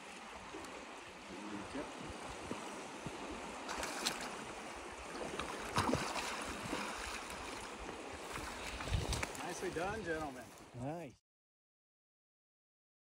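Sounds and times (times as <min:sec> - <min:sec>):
river current rushing: 0:00.0 - 0:10.9
fish splashing in a net: 0:05.2 - 0:07.5.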